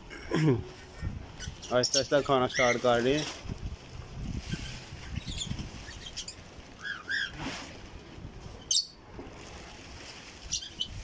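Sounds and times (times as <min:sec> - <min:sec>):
parrots chirping and squeaking: 0:01.4 - 0:03.0, 0:04.5 - 0:07.4, 0:08.6 - 0:09.0, 0:10.5 - 0:11.0.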